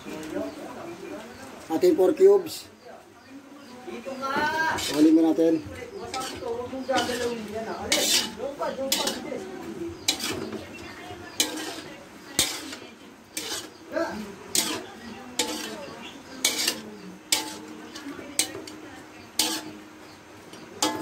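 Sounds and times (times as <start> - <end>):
metal spatula scraping a wok: 4.4 - 21.0.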